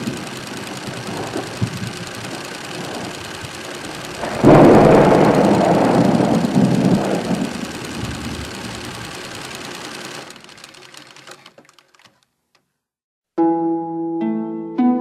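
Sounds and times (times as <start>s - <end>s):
scattered crackles: 0.0s - 12.6s
thunder rumbling hiss: 0.6s - 9.4s
plucked harp-like notes: 13.4s - 15.0s.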